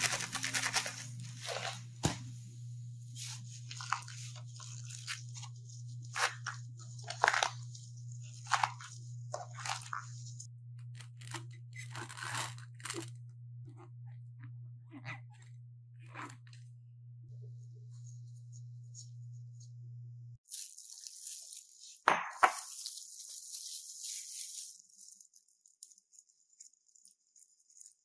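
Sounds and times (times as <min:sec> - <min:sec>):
low steady hum: 0:00.0 - 0:20.4
hands crunching leaves: 0:20.5 - 0:25.8.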